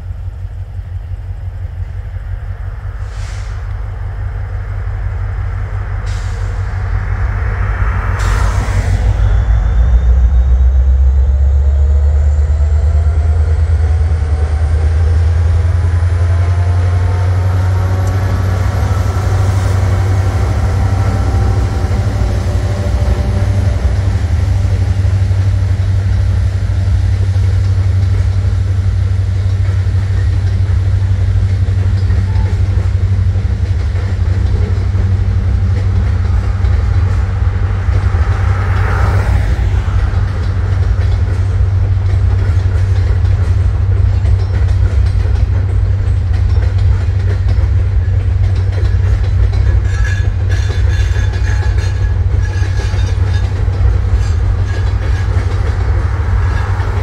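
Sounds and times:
diesel locomotives droning: 0:00.0 - 0:57.0
rising and falling whines: 0:04.0 - 0:26.9, 0:34.9 - 0:42.0.

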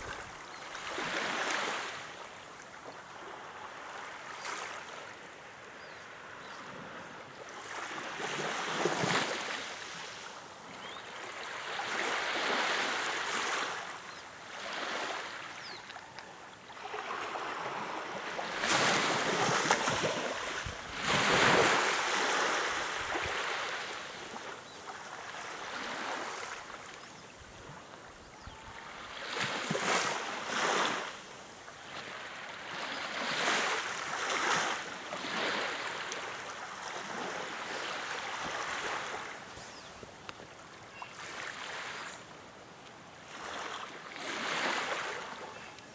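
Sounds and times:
waves lapping around pier pilings: 0:00.0 - 0:45.9.

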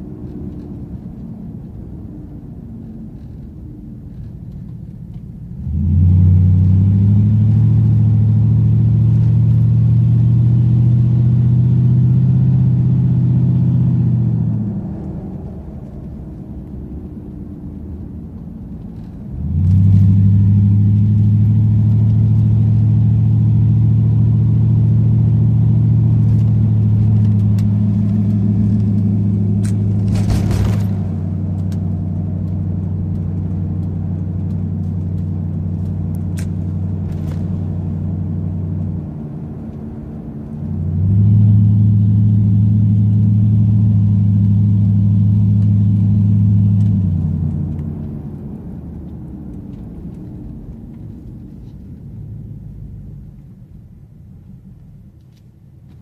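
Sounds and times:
pickup truck exhaust droning: 0:19.3 - 0:39.6, 0:40.5 - 0:49.0.

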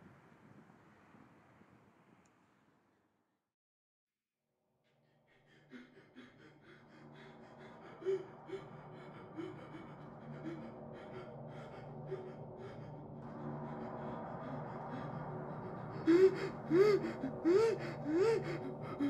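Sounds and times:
person breathing hard: 0:04.9 - 0:19.0.

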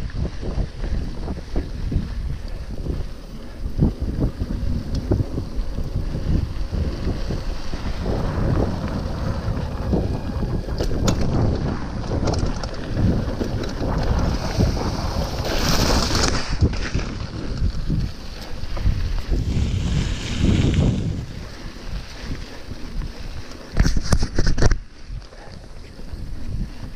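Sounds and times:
bike clicks and rattles: 0:00.0 - 0:26.9
wind buffeting microphone: 0:00.0 - 0:26.9.

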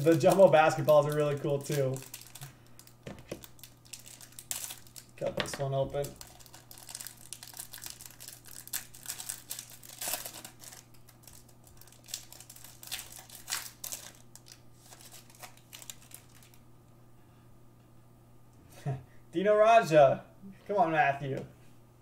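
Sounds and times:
plastic wrapper crinkling: 0:00.0 - 0:16.6.

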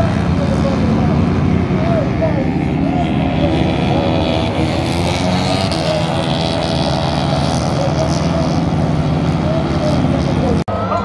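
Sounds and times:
racing motorcycle engines running: 0:00.0 - 0:11.0.

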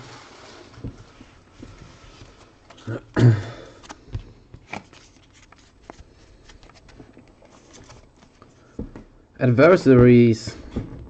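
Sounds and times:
cards clicking and rustling: 0:03.8 - 0:09.0.

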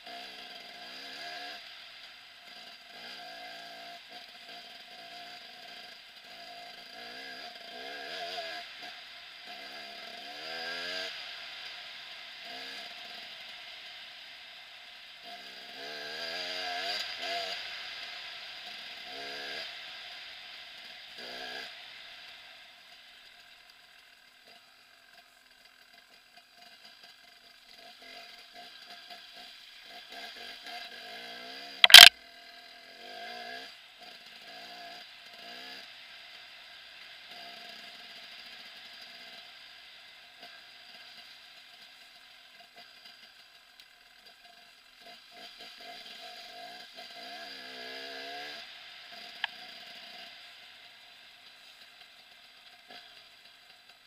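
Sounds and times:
distant dirt bike engine revving: 0:31.8 - 0:32.1
small click: 0:31.8 - 0:32.1.

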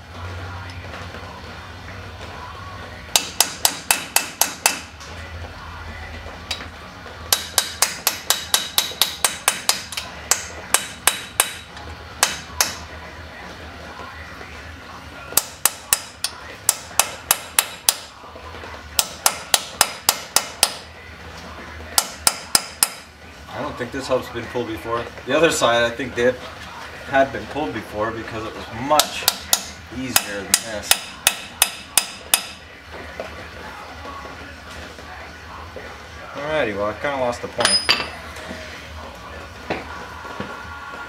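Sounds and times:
hammer striking steel punch: 0:03.2 - 0:04.9, 0:07.3 - 0:12.8, 0:15.4 - 0:18.1, 0:19.0 - 0:20.8, 0:22.0 - 0:23.1, 0:29.0 - 0:32.6, 0:37.6 - 0:38.2.

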